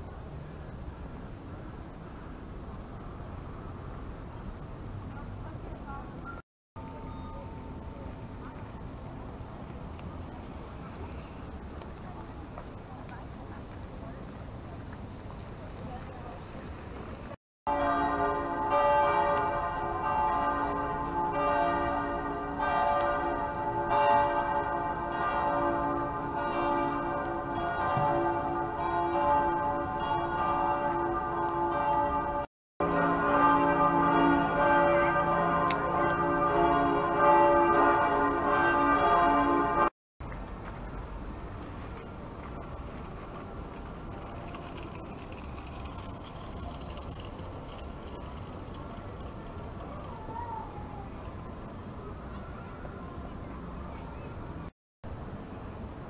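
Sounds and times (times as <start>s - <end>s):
outdoor city background noise: 0.0s - 56.0s
church bells pealing: 17.7s - 39.9s.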